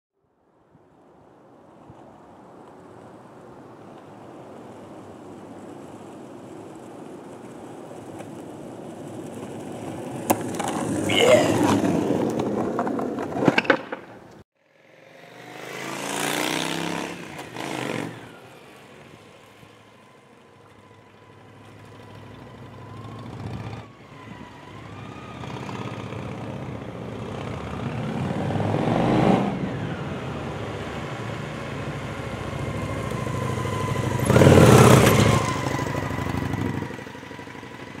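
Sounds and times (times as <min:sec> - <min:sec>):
skateboard rolling on asphalt: 0:00.8 - 0:38.0
motorcycle passing by: 0:14.6 - 0:38.0.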